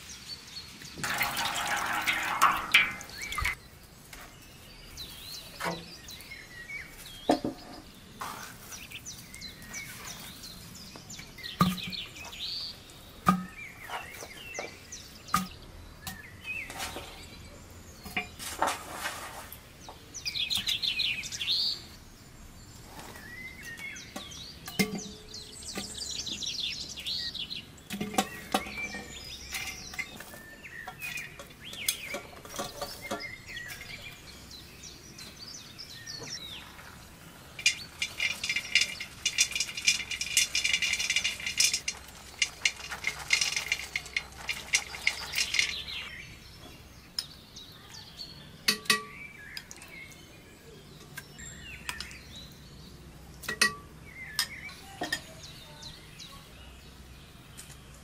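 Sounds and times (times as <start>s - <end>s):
birds chirping: 0.0s - 58.0s
metal cookware clinking: 1.0s - 3.6s, 27.9s - 34.0s, 37.6s - 46.2s, 48.7s - 49.2s, 53.4s - 55.3s.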